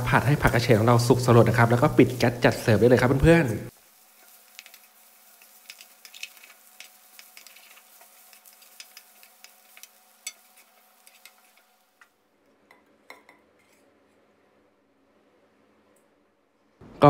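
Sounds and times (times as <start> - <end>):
food sizzling in a wok: 0.0 - 12.0
metal spatula scraping wok: 5.4 - 11.7.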